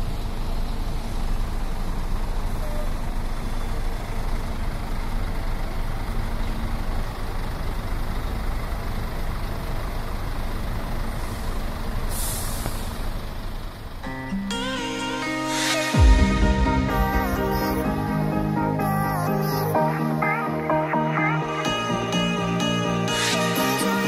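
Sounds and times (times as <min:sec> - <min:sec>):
diesel bus engine running: 0:00.0 - 0:24.0
air brakes hissing: 0:11.0 - 0:13.5.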